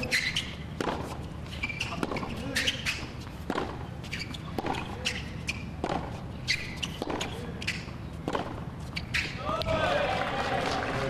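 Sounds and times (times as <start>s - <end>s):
shoe squeaks: 0.0s - 9.6s
tennis ball bouncing: 0.0s - 9.8s
tennis ball struck by racket: 0.1s - 1.2s, 1.8s - 9.7s.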